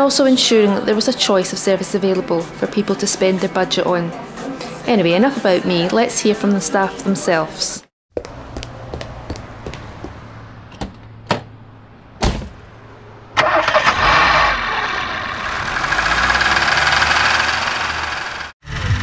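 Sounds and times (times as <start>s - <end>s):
car engine revving and pulling away: 12.6s - 19.0s
car engine idling: 12.7s - 18.5s.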